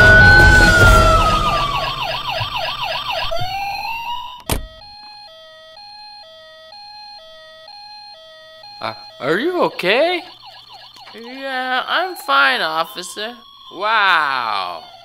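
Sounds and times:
hi-lo two-tone siren: 0.0s - 15.0s
police siren wail and yelp: 0.0s - 15.0s.

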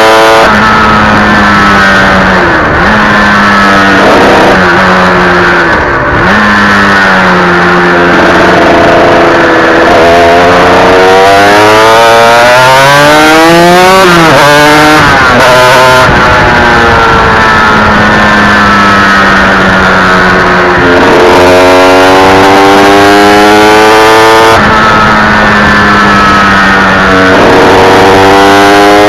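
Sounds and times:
race engine revving: 0.0s - 29.0s
wind rush: 13.2s - 29.0s.

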